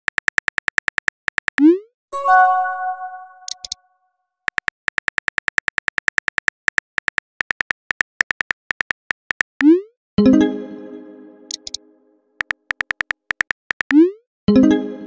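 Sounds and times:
short pitched chime: 2.2 - 3.5
keyboard typing clicks: 2.8 - 3.8, 11.5 - 11.8, 12.4 - 14.0.

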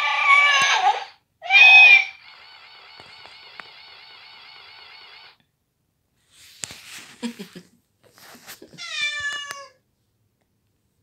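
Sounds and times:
cat meowing loudly: 0.0 - 2.2, 8.8 - 9.8
toy electronic meow: 0.0 - 2.2.

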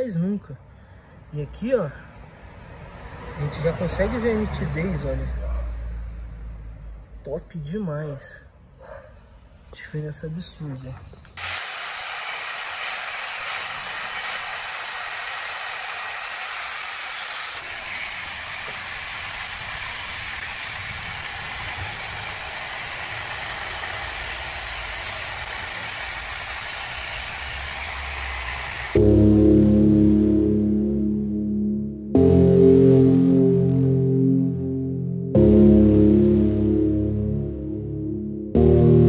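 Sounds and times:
air polisher running: 11.4 - 29.3.

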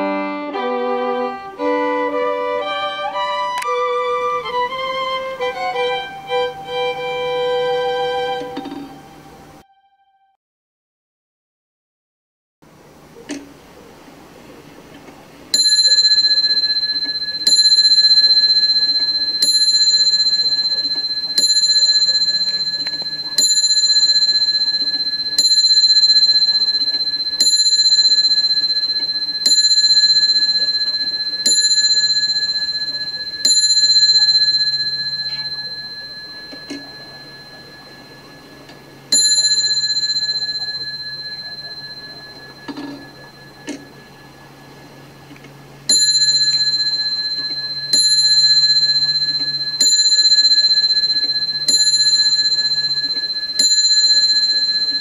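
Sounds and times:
clock bell ringing: 15.5 - 55.0.

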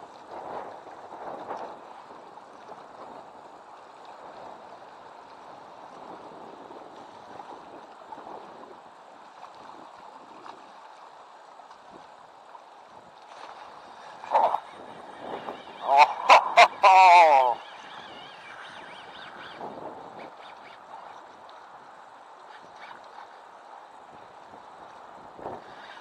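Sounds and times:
river rushing: 12.2 - 18.7.

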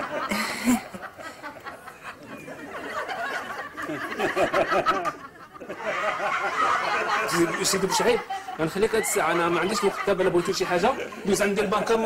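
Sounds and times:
people laughing: 0.0 - 12.0
people talking: 7.1 - 12.0.

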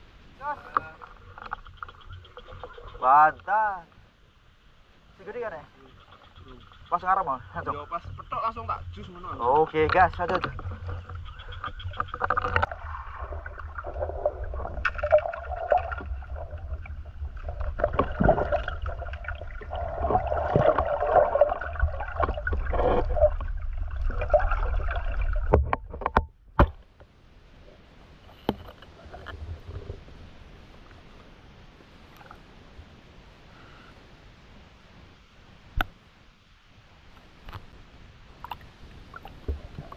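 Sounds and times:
water sloshing and gurgling: 0.0 - 31.4, 37.1 - 39.9
quiet underwater hiss: 0.0 - 39.9.

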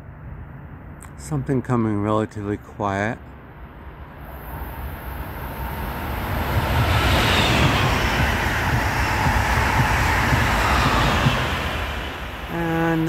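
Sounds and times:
train passing at speed: 3.4 - 13.0.

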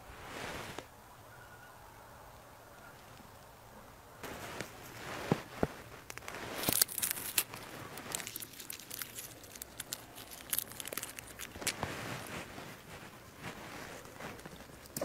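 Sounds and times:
dry leaves rustling and crackling: 4.2 - 15.0.

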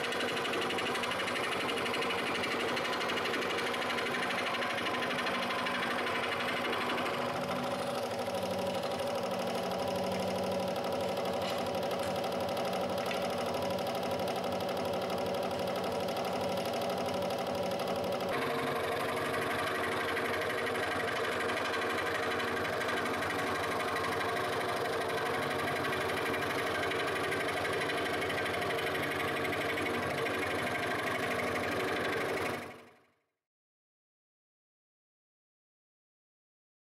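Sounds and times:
scroll saw buzzing: 0.0 - 32.9.

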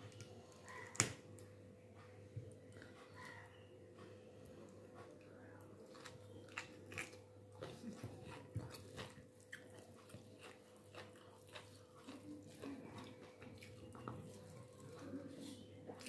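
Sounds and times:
person chewing: 4.4 - 16.0.

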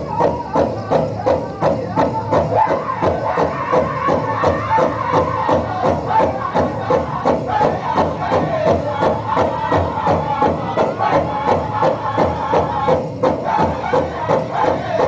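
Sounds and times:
drum group singing: 0.0 - 15.0
steady big drum beat: 0.0 - 15.0.

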